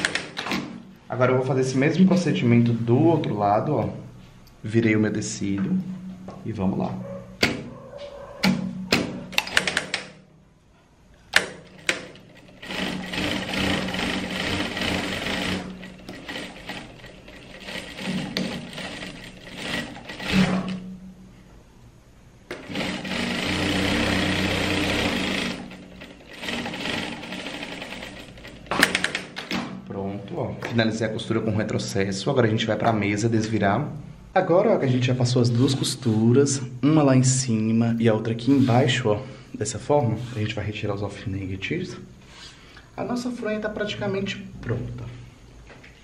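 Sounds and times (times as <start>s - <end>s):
sewing machine stitching: 11.4s - 20.8s, 22.5s - 29.4s.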